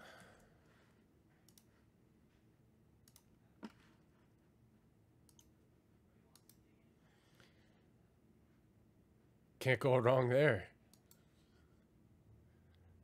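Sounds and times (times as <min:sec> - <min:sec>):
computer mouse clicks: 0:01.4 - 0:01.7, 0:03.0 - 0:03.8, 0:05.3 - 0:05.5, 0:06.3 - 0:06.6.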